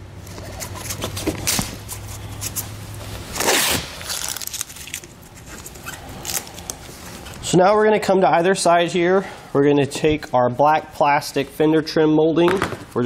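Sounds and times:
tape crackling and ticking: 0.2 - 7.4
tape ripping off roll: 0.3 - 6.8.

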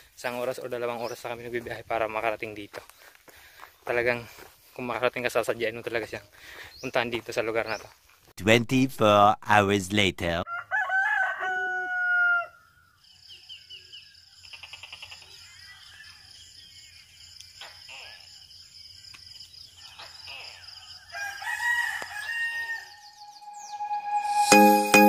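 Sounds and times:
birds chirping and trilling: 0.2 - 8.2, 11.9 - 24.5
rooster crowing: 10.5 - 12.8, 19.8 - 23.4
high-pitched drone: 23.4 - 25.0.

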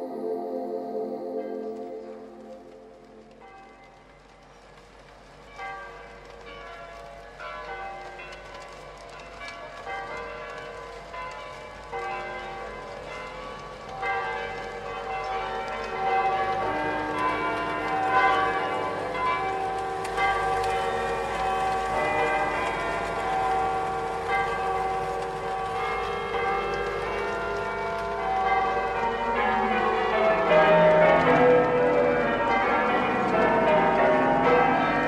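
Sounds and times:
bell-like music with chords: 0.0 - 3.6.

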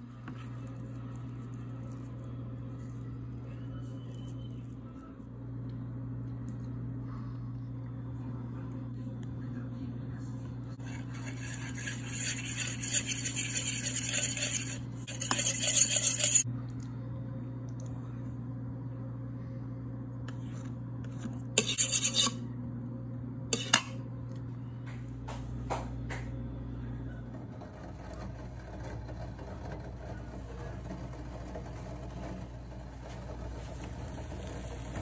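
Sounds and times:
steady low hum: 0.0 - 35.0
metal spoon scraping a ceramic plate: 10.8 - 16.4, 21.6 - 22.4, 23.6 - 23.9.

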